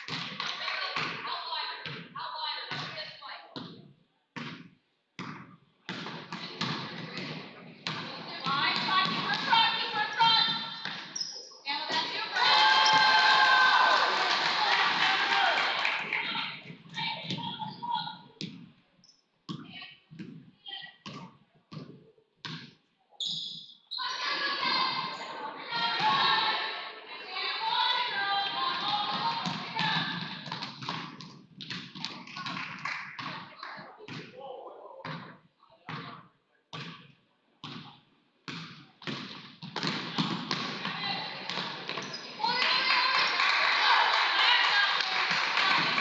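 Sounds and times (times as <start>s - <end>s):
basketball bouncing on hardwood: 4.4s - 9.6s, 38.5s - 42.1s
crowd noise: 11.6s - 18.4s, 23.9s - 30.4s, 40.2s - 46.0s.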